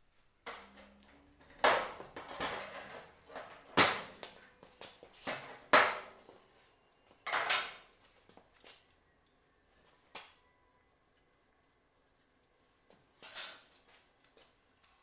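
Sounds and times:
tools scraping metal: 13.2s - 13.7s.

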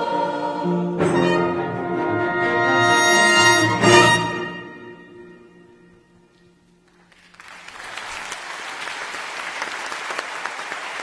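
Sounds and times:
audience applause: 6.9s - 11.0s.

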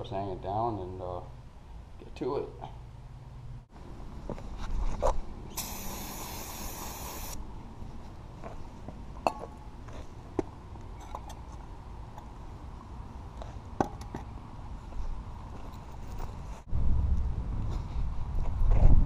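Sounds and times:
aerosol can hissing: 5.5s - 7.4s.

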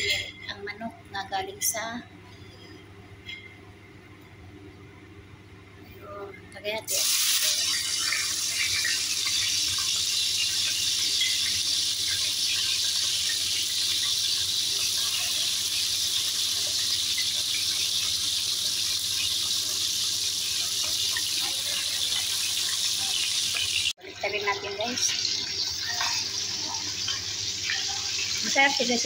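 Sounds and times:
chicken sizzling in hot oil: 6.9s - 29.0s.

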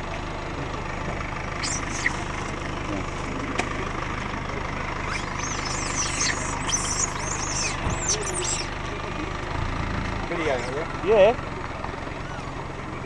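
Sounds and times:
engine idling hum: 0.0s - 13.0s
high-pitched chirping calls: 1.6s - 2.8s, 5.0s - 8.8s.

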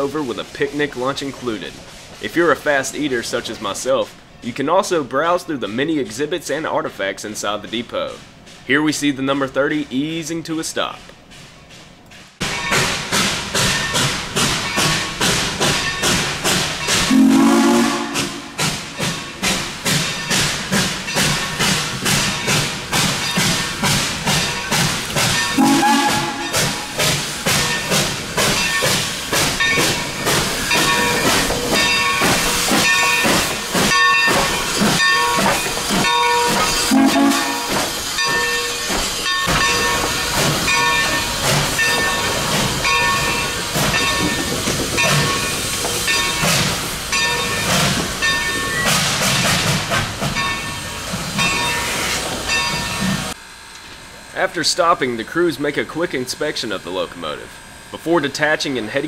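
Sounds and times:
steam locomotive chuffing: 0.0s - 59.0s
hissing steam: 12.8s - 53.4s
train whistle blasts: 17.1s - 18.6s, 25.6s - 27.0s, 36.9s - 37.8s.

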